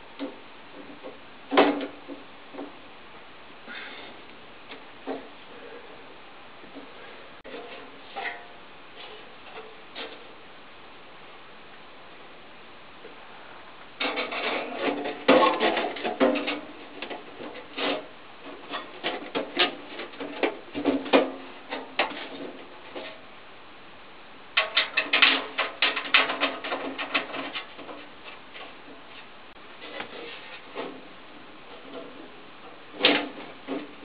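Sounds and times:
metal scraping and rattling: 7.4 - 10.3, 14.0 - 23.2, 24.6 - 34.0.

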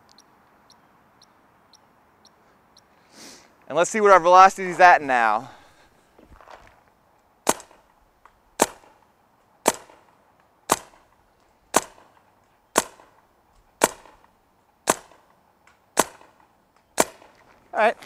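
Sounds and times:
paintball marker shots popping: 7.4 - 17.4.

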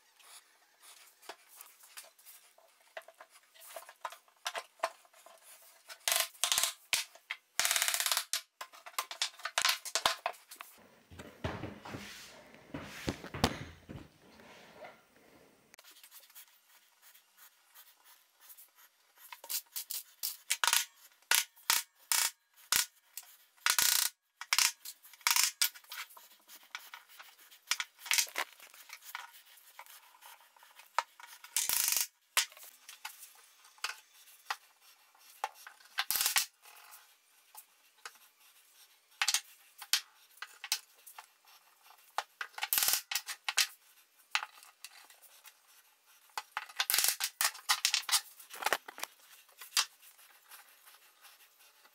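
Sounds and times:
wooden parts knocking on workbench: 11.1 - 12.1.

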